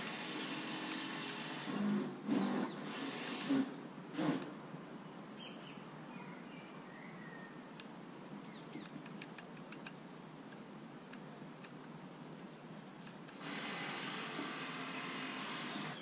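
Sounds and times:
outdoor hiss: 0.0s - 16.0s
faint bird chirps: 5.0s - 7.7s.

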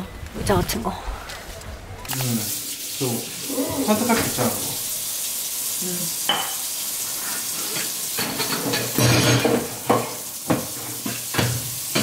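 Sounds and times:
food sizzling in frying pan: 2.1s - 12.0s
utensils and dishes clattering: 3.0s - 4.8s, 6.2s - 12.0s.

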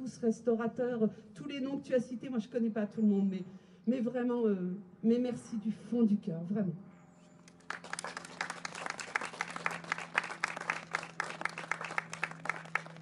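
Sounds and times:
people applauding: 7.5s - 13.0s.

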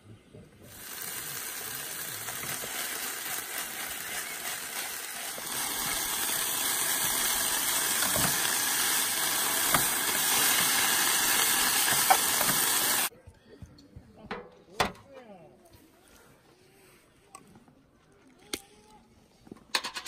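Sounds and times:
food sizzling in a frying pan: 0.7s - 13.1s.

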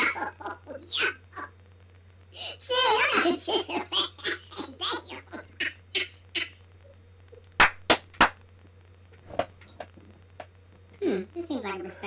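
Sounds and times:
hand claps: 7.6s - 8.4s.

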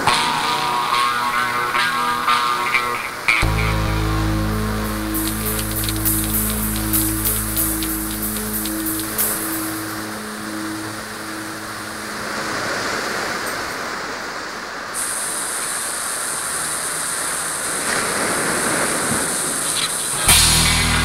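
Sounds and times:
ocean surf: 0.0s - 21.0s
bright hiss: 3.4s - 11.4s, 15.0s - 21.0s
held low tones: 3.4s - 12.0s, 20.2s - 21.0s.

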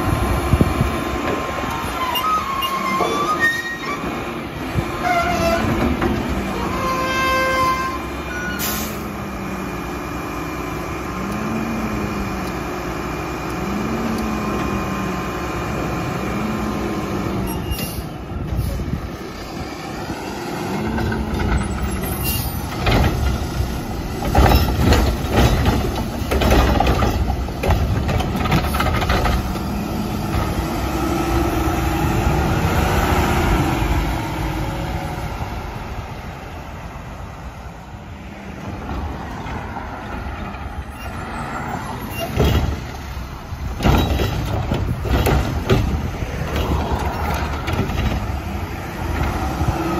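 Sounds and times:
garbage truck engine surging: 7.8s - 37.9s
knocks and metal clanks: 20.8s - 30.7s, 42.1s - 49.4s.

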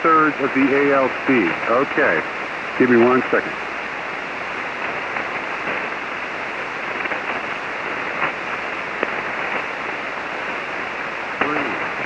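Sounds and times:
radio static hiss: 0.0s - 12.0s
faint radio clicks: 2.9s - 3.3s, 9.0s - 9.7s.

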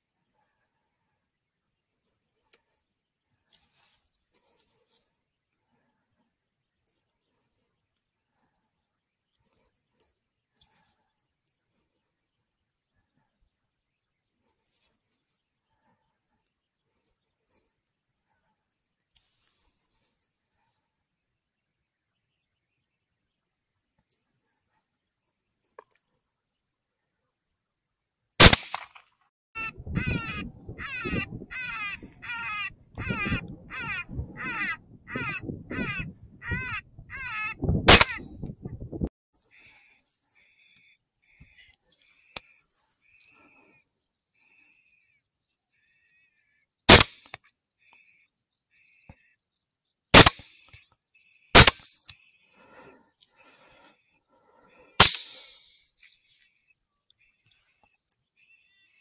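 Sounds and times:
rifle shot: 28.4s - 29.0s, 37.9s - 38.2s, 46.9s - 47.4s, 50.2s - 50.6s, 51.6s - 52.0s, 55.0s - 55.5s
harsh repeated falling calls: 29.6s - 38.3s.

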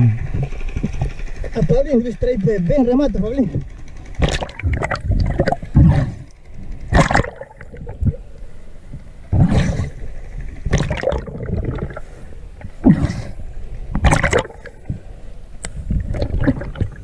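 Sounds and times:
river water sloshing and gurgling: 3.7s - 8.7s, 9.3s - 15.1s, 15.8s - 17.0s.

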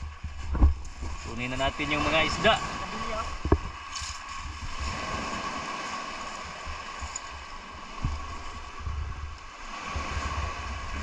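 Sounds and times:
wind buffeting microphone: 0.0s - 11.0s
soft low thump: 0.1s - 1.2s.

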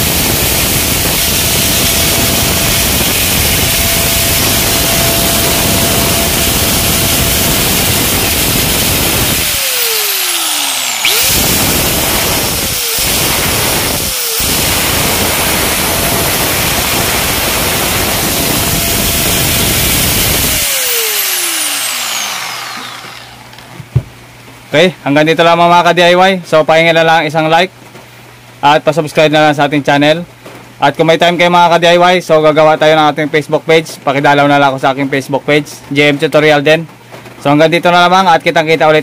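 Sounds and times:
angle grinder whining: 0.0s - 24.0s.

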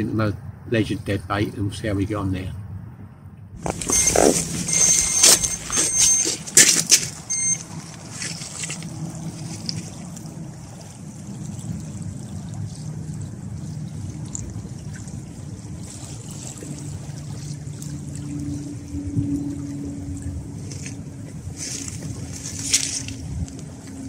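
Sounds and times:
footsteps crunching on gravel: 3.6s - 9.9s
small waves lapping: 3.6s - 24.0s
steady low drone: 3.6s - 24.0s.

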